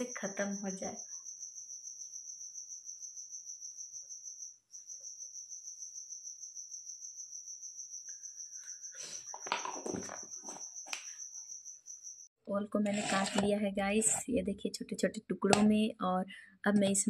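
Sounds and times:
cricket chirping: 0:00.0 - 0:12.3.

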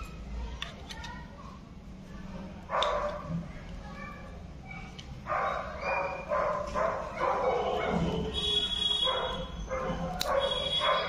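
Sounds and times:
dog barking and yipping: 0:04.7 - 0:08.3, 0:09.0 - 0:11.0.

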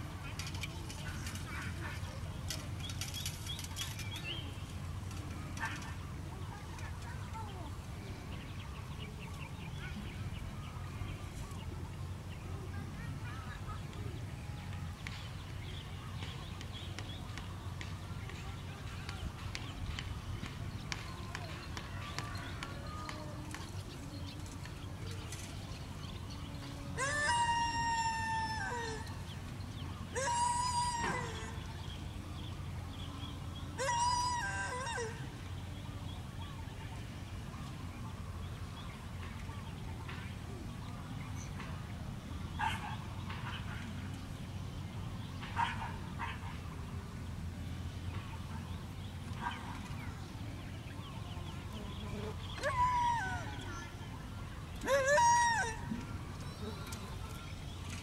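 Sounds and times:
dog howling call: 0:27.0 - 0:29.1, 0:30.1 - 0:31.6, 0:33.8 - 0:35.2, 0:52.6 - 0:53.7, 0:54.8 - 0:56.8
dog howling: 0:52.6 - 0:53.5, 0:54.8 - 0:56.0.

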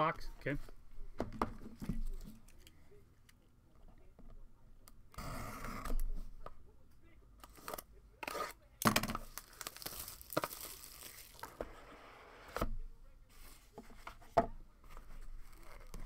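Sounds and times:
wrapping and cardboard tearing: 0:09.2 - 0:11.5.

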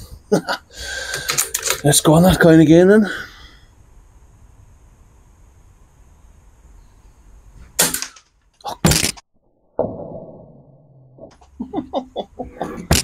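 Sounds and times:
air rifle shot: 0:07.8 - 0:08.2.

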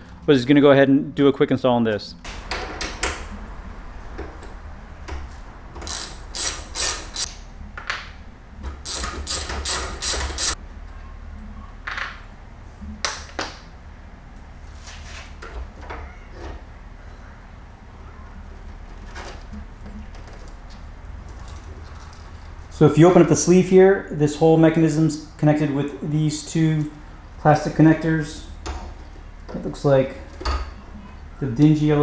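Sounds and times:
steady low hum: 0:00.0 - 0:32.0
ratchet wrench clicking: 0:05.8 - 0:07.3, 0:08.9 - 0:10.6.

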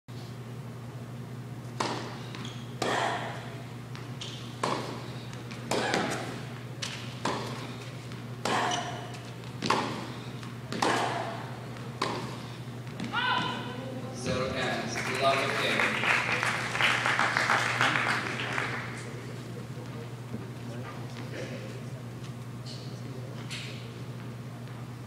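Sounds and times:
steady low hum: 0:00.1 - 0:25.0
ball bouncing on hard court: 0:01.8 - 0:03.0, 0:03.9 - 0:07.6, 0:09.5 - 0:10.1, 0:10.7 - 0:11.2, 0:12.0 - 0:13.6
rackets hitting tennis ball: 0:01.8 - 0:03.4, 0:04.0 - 0:14.4.

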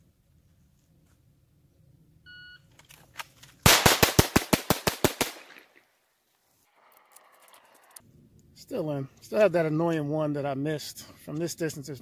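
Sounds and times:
rapid pistol shots: 0:03.6 - 0:05.8.

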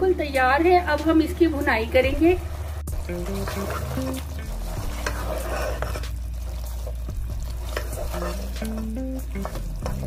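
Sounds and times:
meat sizzling in oil: 0:02.1 - 0:10.0
spatula stirring and scraping: 0:02.8 - 0:10.0.

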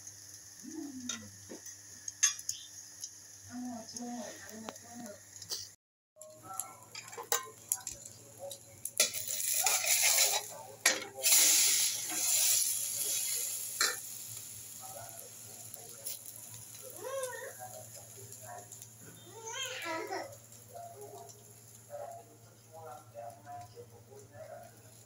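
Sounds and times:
bread sizzling in pan: 0:00.0 - 0:05.7, 0:06.5 - 0:25.0
metal utensil clinking on pan: 0:02.2 - 0:02.6, 0:06.2 - 0:08.0, 0:09.0 - 0:11.4.

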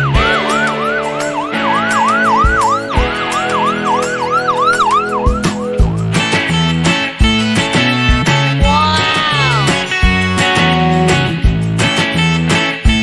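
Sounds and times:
background music with beat: 0:00.0 - 0:13.0.

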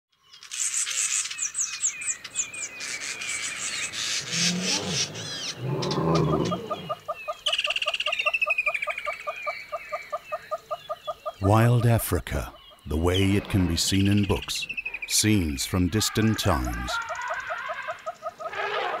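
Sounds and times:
birds chirping and trilling: 0:00.1 - 0:19.0.

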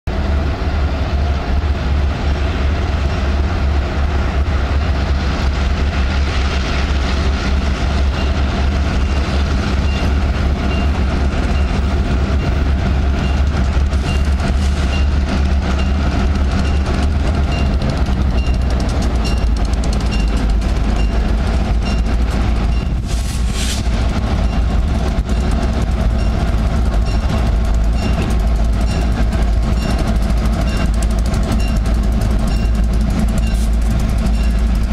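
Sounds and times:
locomotive diesel rumble: 0:00.1 - 0:34.9
locomotive bell ringing: 0:08.0 - 0:23.0, 0:24.4 - 0:34.9.

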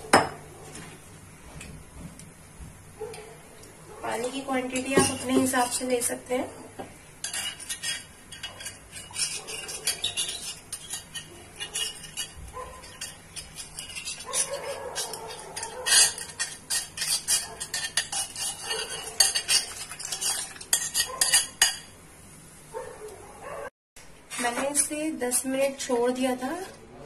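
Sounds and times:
utensil scraping metal bowl: 0:07.2 - 0:21.9.

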